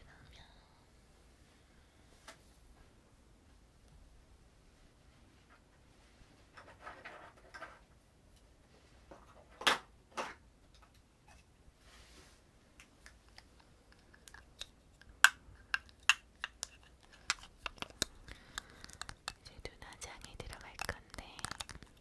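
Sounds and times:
soft rustling: 0:11.8 - 0:12.5
plastic case clicking: 0:15.8 - 0:22.0.

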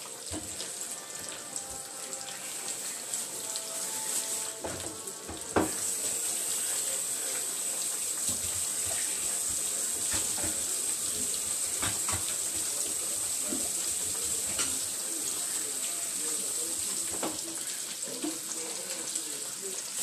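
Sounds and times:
tap running into metal sink: 0:00.2 - 0:01.8, 0:04.6 - 0:06.2, 0:08.2 - 0:14.8, 0:17.1 - 0:17.5
knock: 0:04.7 - 0:05.8.

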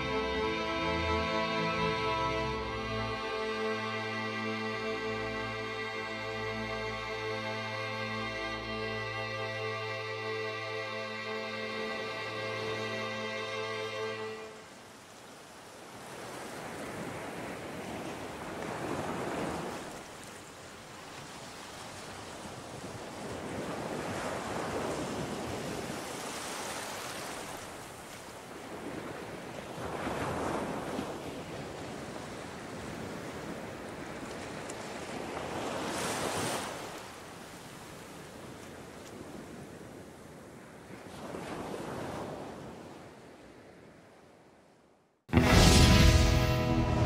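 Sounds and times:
waves breaking on beach: 0:13.4 - 0:44.6.

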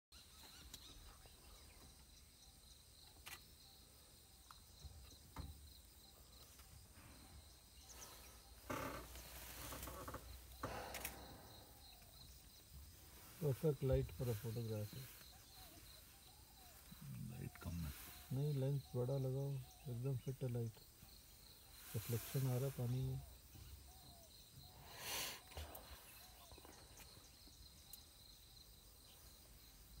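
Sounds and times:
insects shrilling: 0:06.3 - 0:28.3
rustling: 0:07.9 - 0:11.8
faint ticks: 0:08.0 - 0:12.7, 0:26.6 - 0:28.2.

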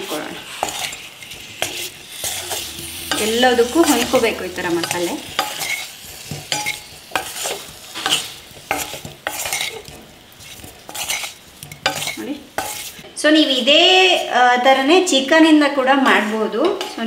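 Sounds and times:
wooden spatula scraping a pan: 0:00.0 - 0:13.0
vegetables sizzling: 0:00.0 - 0:14.3.

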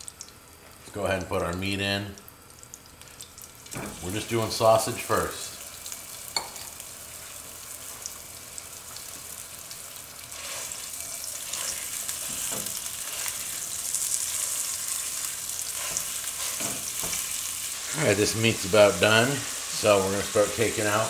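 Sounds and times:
sausage sizzling in hot oil: 0:00.0 - 0:21.0
spatula stirring meat: 0:07.1 - 0:20.6.

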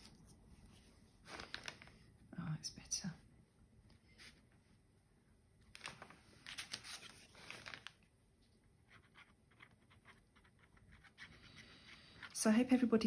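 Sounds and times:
paper rustling and scratching: 0:00.0 - 0:01.9, 0:05.8 - 0:08.0, 0:08.8 - 0:12.4.

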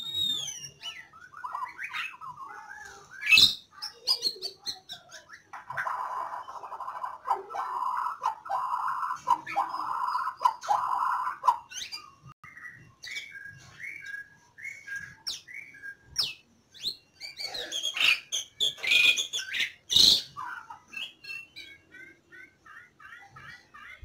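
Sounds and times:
whistled bird chirps: 0:00.0 - 0:03.8, 0:08.6 - 0:20.4
birds calling: 0:00.0 - 0:24.0.

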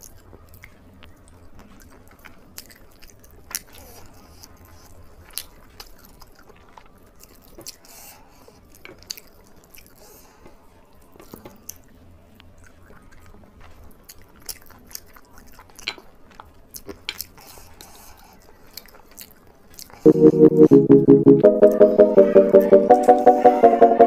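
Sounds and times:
person chewing food: 0:00.0 - 0:07.9, 0:12.4 - 0:20.0.

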